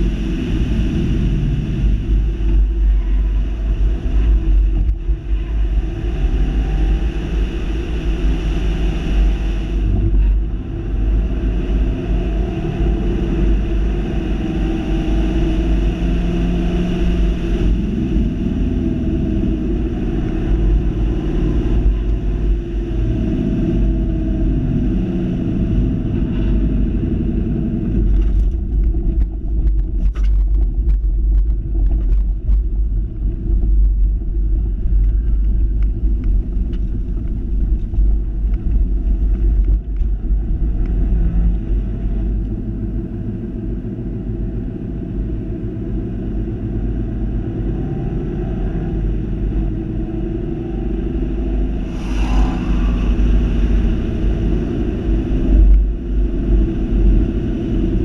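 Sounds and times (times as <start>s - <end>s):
car engine rumble inside cabin: 0.0s - 58.0s
road noise: 0.0s - 58.0s.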